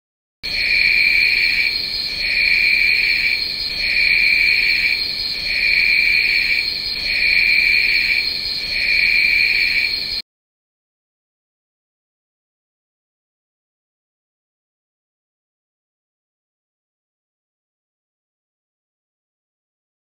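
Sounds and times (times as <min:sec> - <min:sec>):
crickets chirping: 0:00.4 - 0:10.2.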